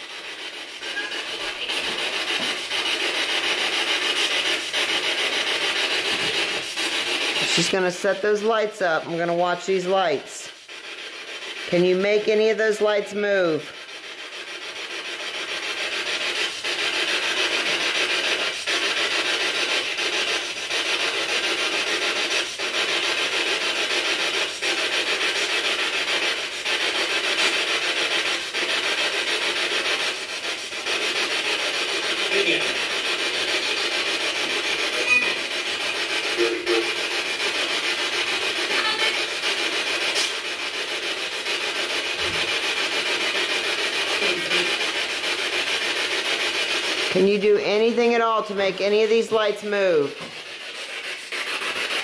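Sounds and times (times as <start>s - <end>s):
radio static hiss: 0.8s - 2.6s, 32.3s - 32.8s, 36.2s - 37.0s, 38.6s - 39.3s
short snatches of tone: 35.0s - 35.4s.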